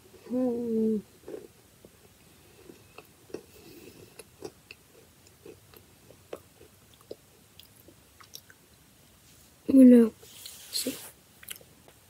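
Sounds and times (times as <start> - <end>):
person chewing a biscuit: 1.2 - 8.6.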